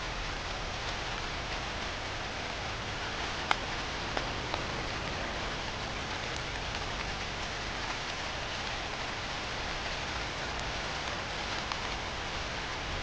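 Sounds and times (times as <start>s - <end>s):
raindrop ticks: 0.0s - 13.0s
steady rain hiss: 0.0s - 13.0s.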